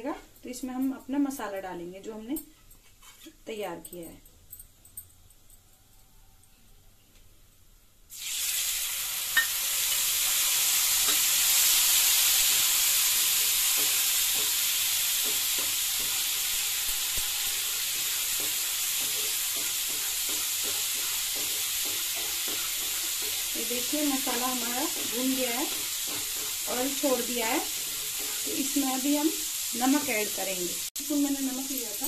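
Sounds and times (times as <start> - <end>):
paste sizzling in hot oil: 8.1 - 32.0
wooden spatula stirring: 17.6 - 29.0.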